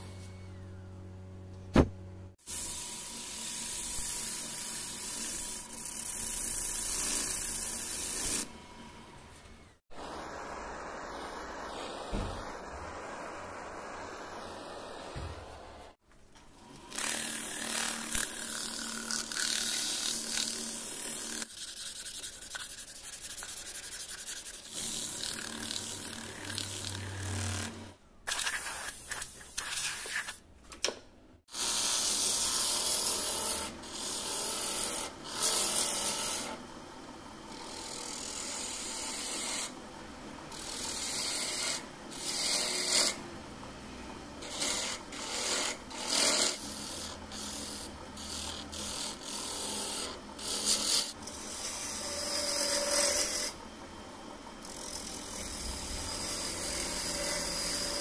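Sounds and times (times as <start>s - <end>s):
low motor hum: 0.0s - 2.3s
lathe tool cutting wood: 40.5s - 43.2s, 44.4s - 53.6s, 54.6s - 58.0s.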